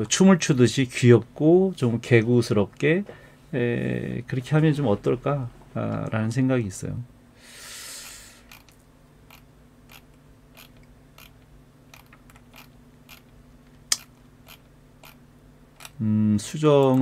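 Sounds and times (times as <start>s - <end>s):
mouse scroll wheel clicking: 8.5s - 10.0s, 10.6s - 13.3s, 13.9s - 15.2s.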